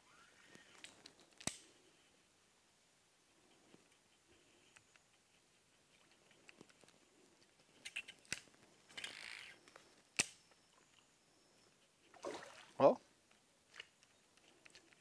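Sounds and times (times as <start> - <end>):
water splash: 12.2 - 12.9.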